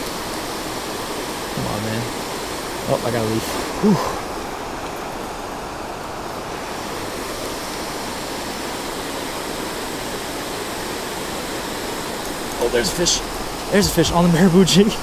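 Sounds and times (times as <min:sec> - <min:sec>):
water rushing over a dam: 0:00.0 - 0:15.0.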